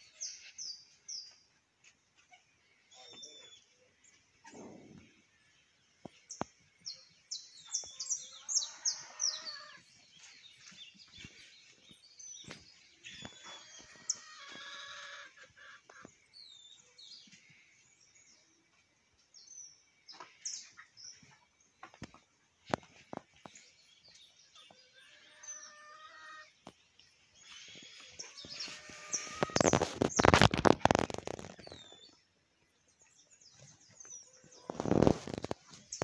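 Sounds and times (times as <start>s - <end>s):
small birds chirping: 0.0s - 36.0s
chicken calling: 13.3s - 16.0s, 25.0s - 26.5s, 28.0s - 30.0s.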